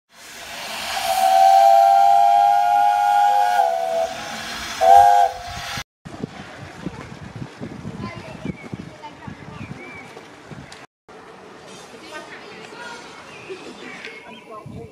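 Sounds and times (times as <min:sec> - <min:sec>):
hiss of steam: 0:00.1 - 0:05.8
steam whistle blast: 0:00.2 - 0:05.8.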